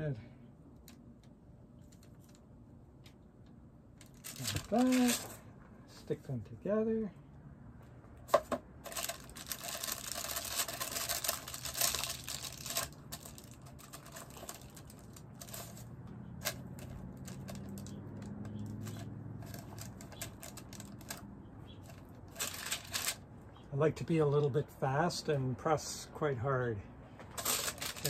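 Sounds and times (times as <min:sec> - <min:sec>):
plastic crinkling and rustling: 0:04.0 - 0:05.4, 0:08.8 - 0:21.2, 0:21.8 - 0:23.2, 0:27.2 - 0:28.0.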